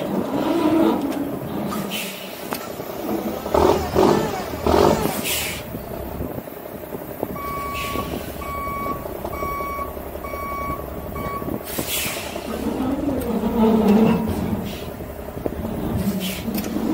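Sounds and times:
low engine rumble: 0:00.0 - 0:16.9
short air hiss: 0:05.2 - 0:05.7, 0:11.7 - 0:12.4
reversing alarm beeping: 0:07.3 - 0:11.6.

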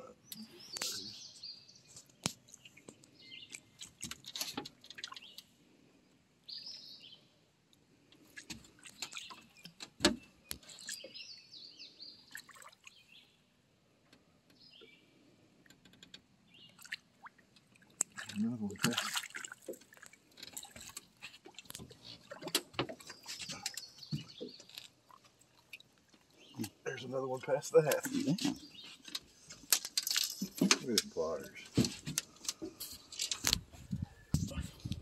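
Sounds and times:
birds chirping: 0:00.0 - 0:03.9, 0:08.9 - 0:13.4, 0:21.8 - 0:25.1, 0:26.3 - 0:31.8
water dripping: 0:16.8 - 0:26.7.

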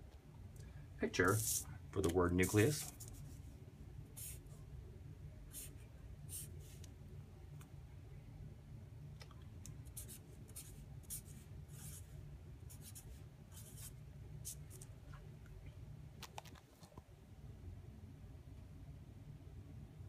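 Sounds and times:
steady low hum: 0:00.0 - 0:20.0
marker writing on whiteboard: 0:09.9 - 0:12.1, 0:12.7 - 0:14.8.

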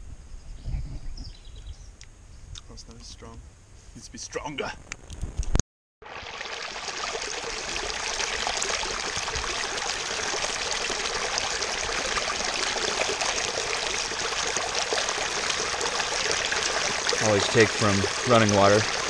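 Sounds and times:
creek water rushing over rocks: 0:06.0 - 0:19.0.

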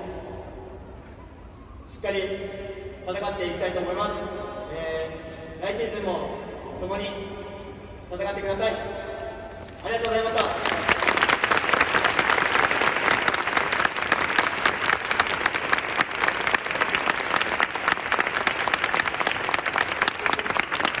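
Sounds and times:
crowd applauding: 0:09.6 - 0:21.0.

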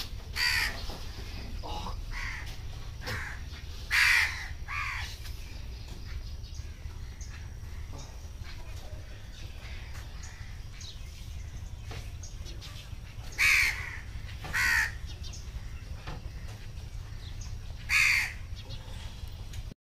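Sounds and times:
crow cawing: 0:00.4 - 0:00.8, 0:01.6 - 0:05.2, 0:13.4 - 0:15.1, 0:16.3 - 0:18.5.

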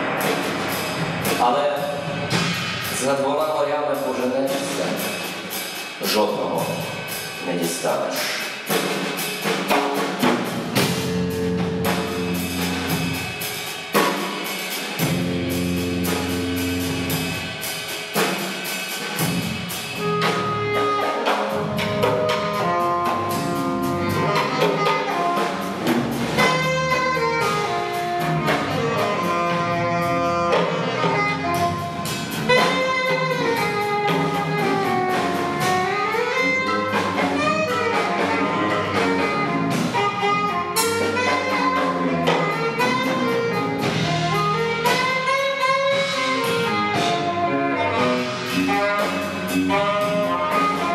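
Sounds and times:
drums: 0:00.0 - 0:50.9
jazz-rock band playing: 0:00.0 - 0:50.9
saxophone melody: 0:10.7 - 0:13.5, 0:15.0 - 0:17.7, 0:19.6 - 0:50.9.

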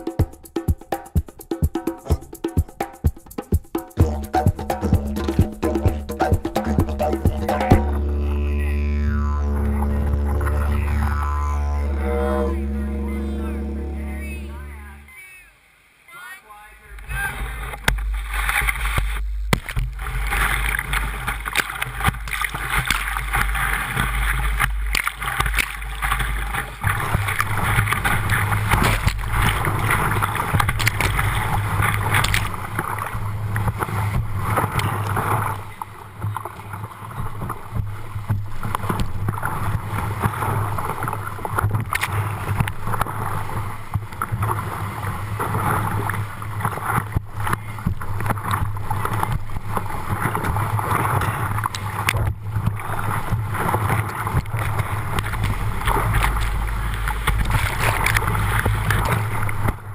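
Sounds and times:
steady low drone: 0:04.0 - 0:15.2.

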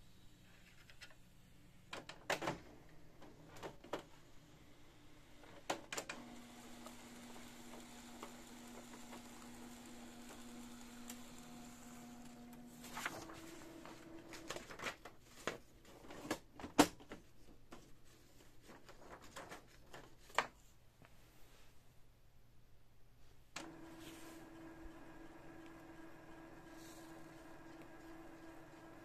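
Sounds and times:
printer motor hum: 0:06.0 - 0:14.6, 0:23.6 - 0:29.0.

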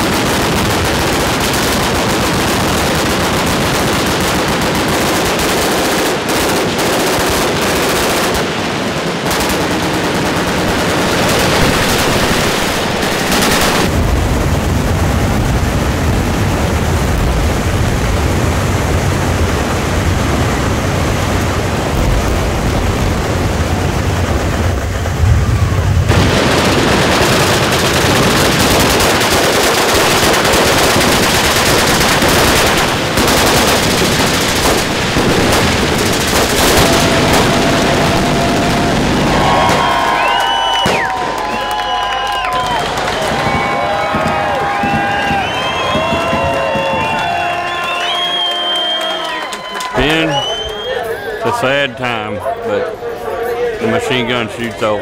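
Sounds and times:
massed machine gun fire: 0:00.0 - 0:16.0, 0:19.0 - 0:41.4.

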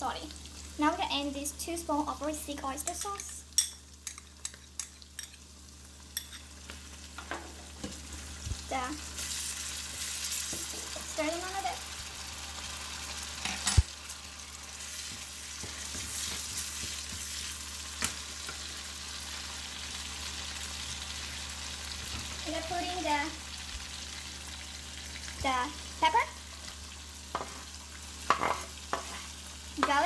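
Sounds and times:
food sizzling in a wok: 0:00.0 - 0:30.0
wooden spatula scraping wok: 0:28.3 - 0:29.4.

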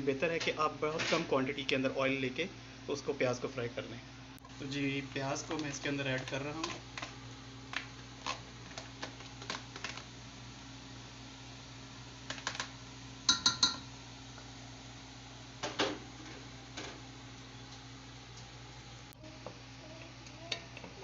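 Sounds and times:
tray tapping on pot rim: 0:13.3 - 0:13.8
pot clanking: 0:13.3 - 0:14.0.

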